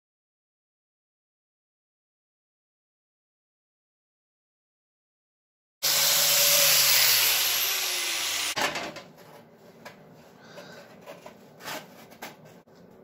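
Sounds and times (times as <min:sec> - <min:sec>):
angle grinder grinding steel: 0:05.8 - 0:08.6.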